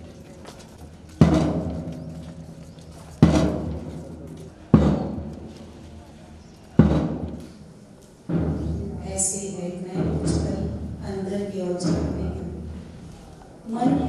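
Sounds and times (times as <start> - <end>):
heavy drum hits: 1.2 - 2.0, 3.2 - 5.5, 6.8 - 7.4.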